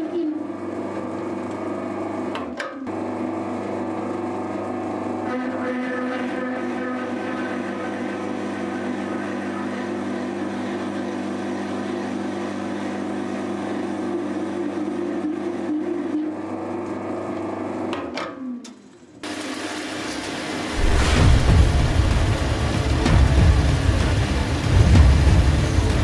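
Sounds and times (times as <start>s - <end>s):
metal lathe motor whine: 4.4s - 17.5s
lathe cutting metal: 5.6s - 12.1s, 19.3s - 26.0s.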